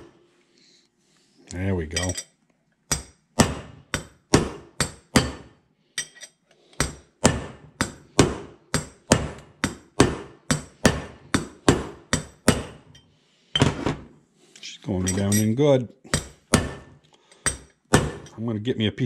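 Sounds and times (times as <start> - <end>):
hammer striking metal: 2.9 - 6.2, 6.8 - 13.0, 16.1 - 16.9.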